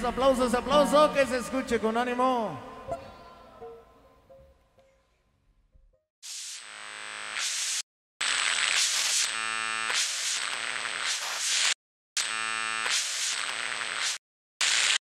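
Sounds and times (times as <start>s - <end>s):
electric buzz: 6.2s - 15.0s
static hiss: 6.2s - 15.0s.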